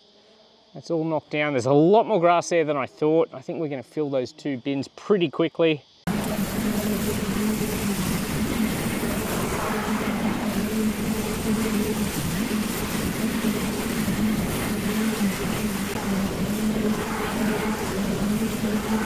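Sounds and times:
lawn mower running: 6.1s - 19.0s.

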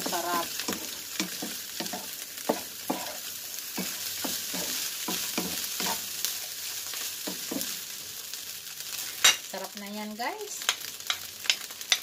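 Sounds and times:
spatula scraping a pan: 0.0s - 7.7s
rice sizzling in a pan: 0.0s - 12.0s.

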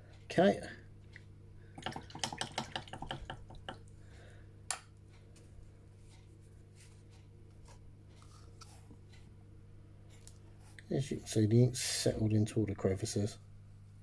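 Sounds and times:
steady low hum: 0.0s - 14.0s
pot clicks and rustles: 1.7s - 4.0s.

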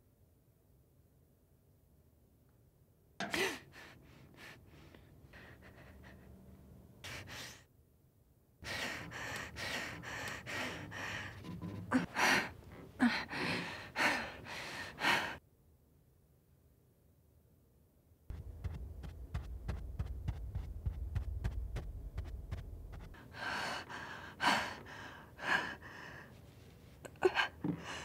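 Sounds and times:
woman gasping for breath: 8.6s - 15.4s, 23.1s - 26.3s.

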